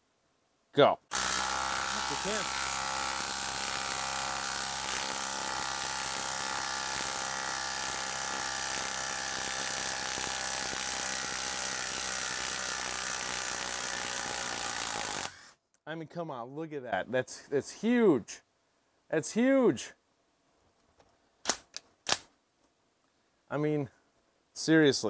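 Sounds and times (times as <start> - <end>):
impact driver hammering: 1.1 - 15.4.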